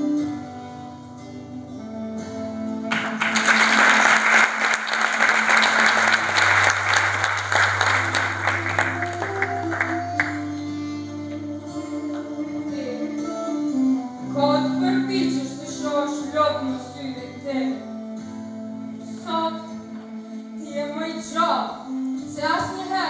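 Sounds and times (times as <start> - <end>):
slow instrumental music: 0.0 - 23.0
audience applauding: 2.9 - 10.6.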